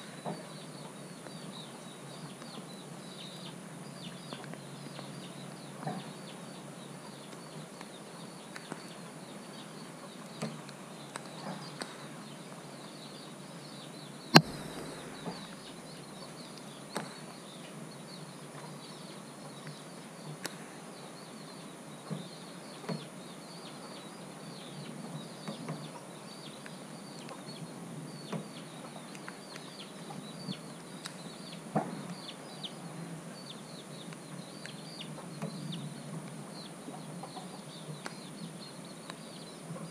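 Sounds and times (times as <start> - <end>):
bird calls and chirps: 0.0 - 39.9
sharp click: 14.4 - 15.8.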